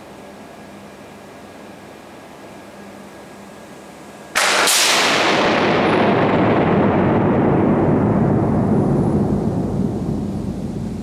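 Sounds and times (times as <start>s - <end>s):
loud electrical bang: 4.4s - 11.0s
low rumble: 5.1s - 11.0s
loud hissing noise: 7.9s - 11.0s.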